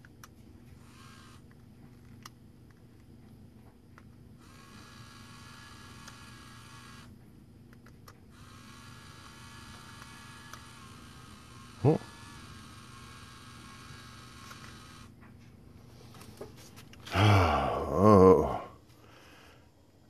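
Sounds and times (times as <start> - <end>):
small electric motor running: 0.7 - 1.5, 4.4 - 7.2, 8.3 - 15.2.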